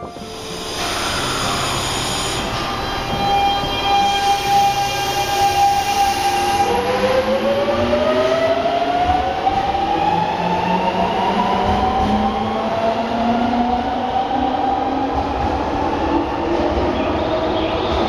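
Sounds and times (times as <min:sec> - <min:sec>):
electric train inverter whining: 0:00.0 - 0:10.0
rumble of running train: 0:00.0 - 0:18.0.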